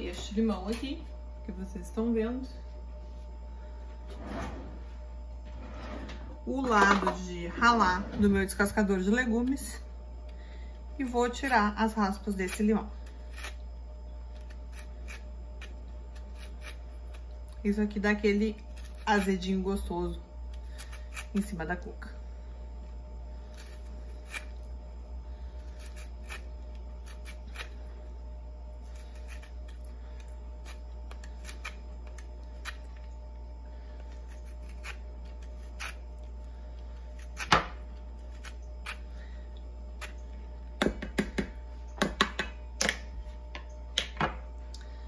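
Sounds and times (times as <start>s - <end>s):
lime scraping on grater: 14.4s - 17.2s, 25.7s - 27.8s, 34.2s - 36.0s.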